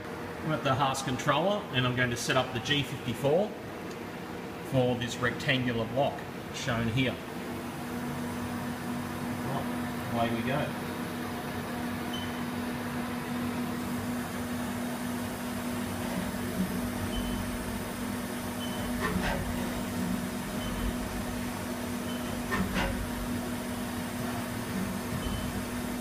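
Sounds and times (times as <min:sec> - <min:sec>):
machine hum: 0:07.1 - 0:26.0.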